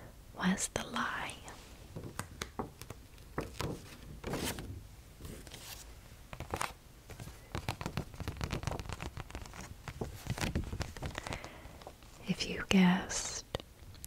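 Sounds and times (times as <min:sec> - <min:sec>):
paper card crinkling: 0:02.2 - 0:12.1.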